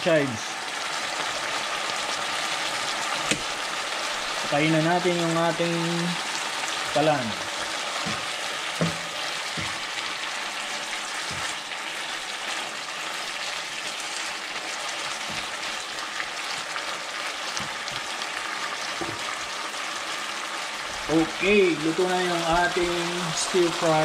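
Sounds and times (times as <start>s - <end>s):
food sizzling in a frying pan: 0.0s - 24.0s
spatula stirring in pan: 6.2s - 19.6s.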